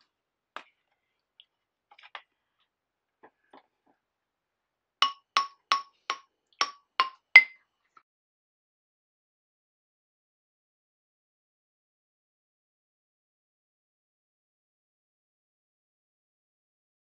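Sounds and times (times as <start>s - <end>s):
xylophone notes ringing: 5.0s - 5.8s.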